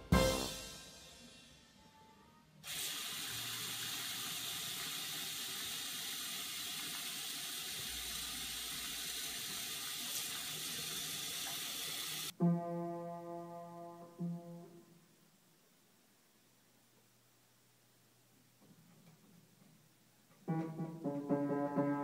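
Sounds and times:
faucet turned on: 2.6 - 12.3
water running into sink: 2.6 - 12.3.

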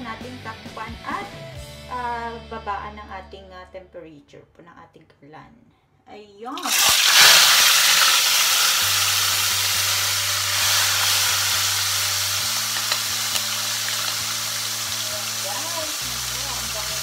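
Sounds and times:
meat sizzling in hot oil: 6.6 - 17.0.

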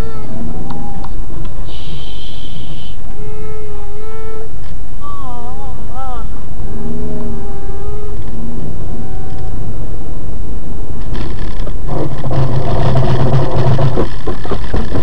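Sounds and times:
steady low hum: 0.0 - 15.0
sharp knocks: 11.2 - 15.0
vehicle running on road: 11.2 - 15.0.

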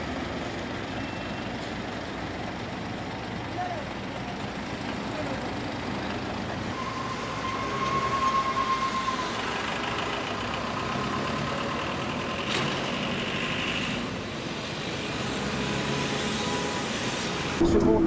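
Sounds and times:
bus engine and road noise: 0.0 - 18.0
thin high tone: 6.8 - 9.6.

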